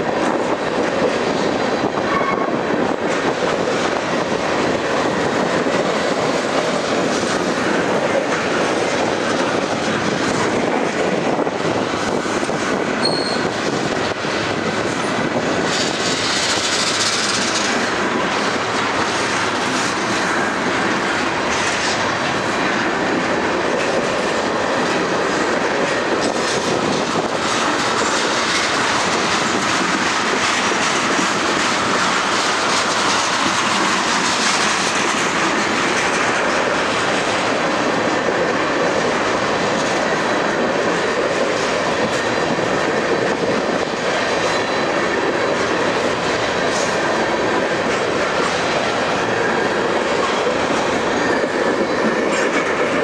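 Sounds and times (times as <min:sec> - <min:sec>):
train wheels on rails: 0:00.0 - 0:53.0.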